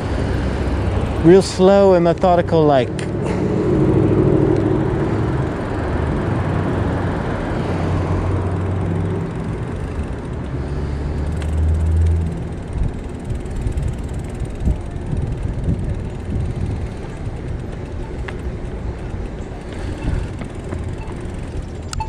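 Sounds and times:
rush of traffic: 0:00.0 - 0:22.0
vehicle engine hum: 0:00.0 - 0:22.0.

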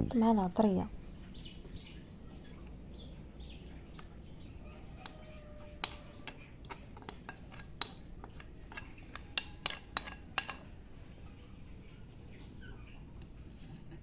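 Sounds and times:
spatula scraping ceramic plate: 0:05.0 - 0:10.7
utensil clinking on dish: 0:05.0 - 0:10.7.

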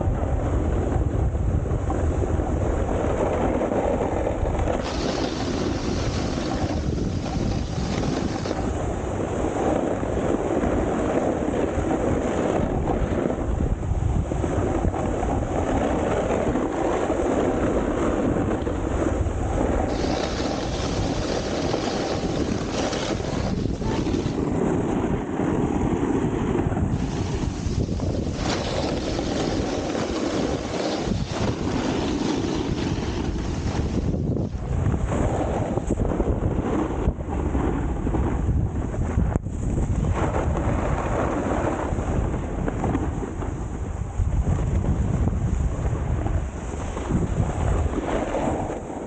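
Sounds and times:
wind on microphone: 0:00.0 - 0:49.0
snowboard scraping on icy snow: 0:02.6 - 0:13.4, 0:14.3 - 0:38.4, 0:39.0 - 0:43.6, 0:44.6 - 0:49.0.

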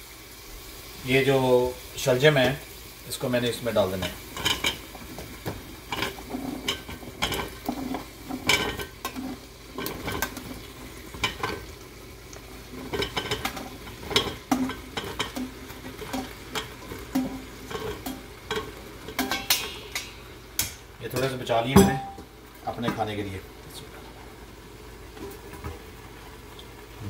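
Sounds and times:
oil sizzling in pot: 0:00.0 - 0:27.0
food pieces landing in pot: 0:12.9 - 0:20.9.

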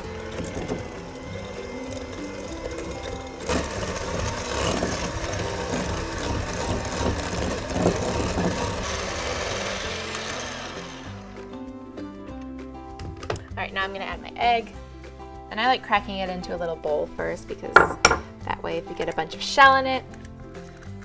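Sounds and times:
electric hand mixer running: 0:00.0 - 0:11.8.

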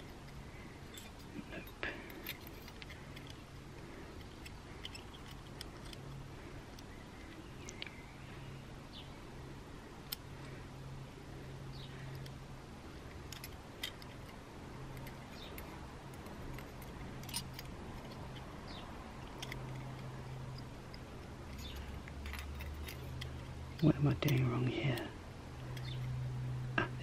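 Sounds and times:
low steady hum: 0:00.0 - 0:27.0
metallic clicks of brake pad: 0:25.7 - 0:26.2.

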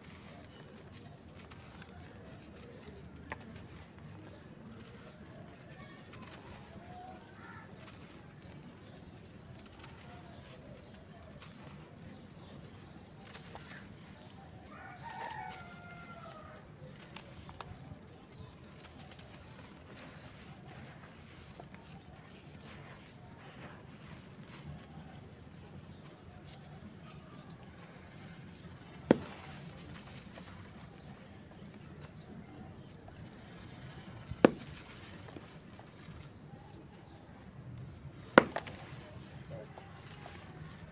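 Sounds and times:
gritty crunching of crumbling blocks: 0:00.0 - 0:40.9
sharp cracks: 0:26.1 - 0:36.3, 0:37.9 - 0:40.9.

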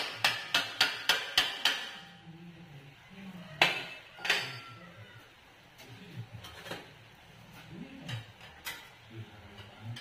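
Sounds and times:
hammer striking steel: 0:00.0 - 0:02.1.

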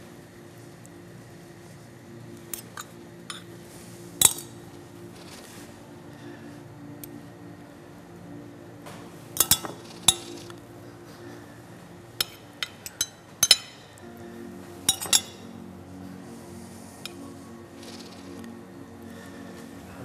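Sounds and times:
soft background music: 0:00.0 - 0:20.0
metal spoons clinking on dish: 0:09.4 - 0:10.5, 0:12.2 - 0:14.0, 0:14.9 - 0:15.5.

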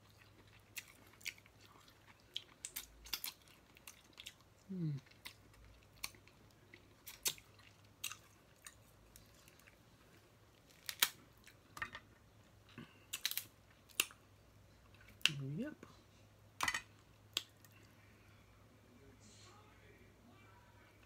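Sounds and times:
chewing: 0:00.0 - 0:11.6
crab shells cracking: 0:02.5 - 0:04.1, 0:10.7 - 0:11.2, 0:13.1 - 0:14.2.

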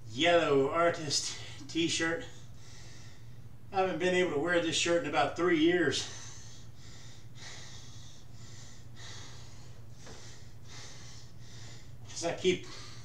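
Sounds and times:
steady low hum: 0:00.0 - 0:13.0
man breathing hard: 0:02.2 - 0:03.6, 0:06.0 - 0:13.0.

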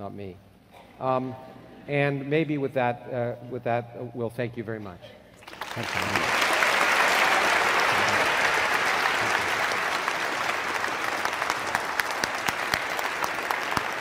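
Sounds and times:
audience applauding: 0:05.4 - 0:14.0.

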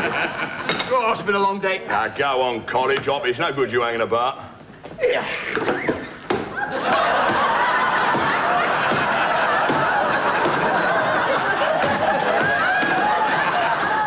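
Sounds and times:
studio audience laughter: 0:00.0 - 0:00.7, 0:06.0 - 0:14.0.

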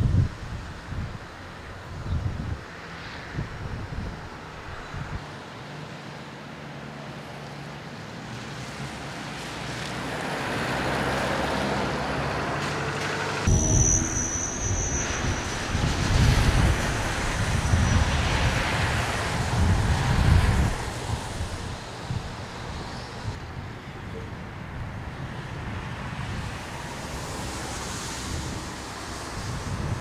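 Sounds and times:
wind buffeting microphone: 0:00.0 - 0:05.3, 0:13.4 - 0:30.0
traffic on wet road: 0:00.0 - 0:30.0.

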